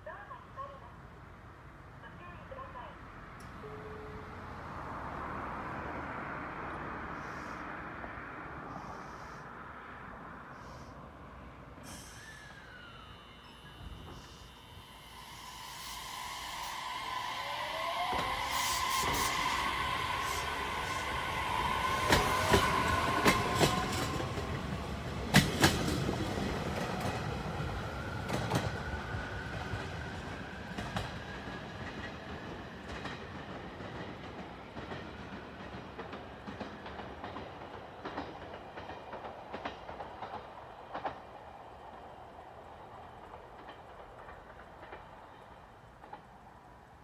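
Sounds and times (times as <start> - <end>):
electric train motors whining: 11.9 - 31.2
train wheels clacking over rail joints: 18.0 - 27.3, 30.6 - 41.3, 42.9 - 46.6.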